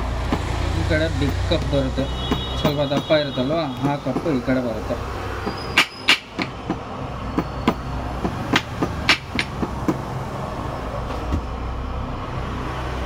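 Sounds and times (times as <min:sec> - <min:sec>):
metal tool tapping: 0:07.4 - 0:10.0.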